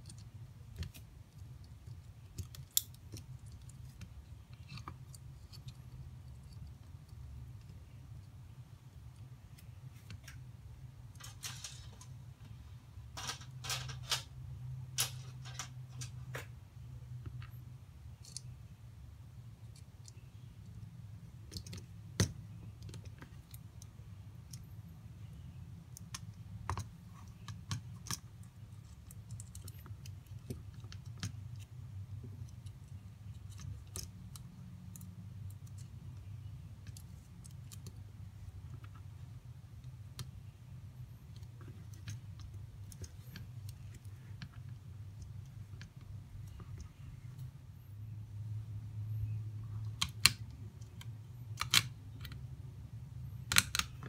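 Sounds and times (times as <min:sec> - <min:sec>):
plastic parts clicking: 0:13.1 - 0:14.3, 0:15.0 - 0:16.5, 0:49.9 - 0:52.4, 0:53.4 - 0:54.0.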